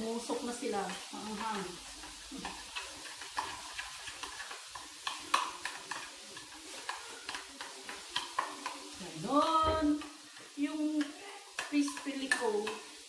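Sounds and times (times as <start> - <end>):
spoon stirring thick sauce: 0.1 - 13.0
spoon clicking against bowl: 6.8 - 8.8.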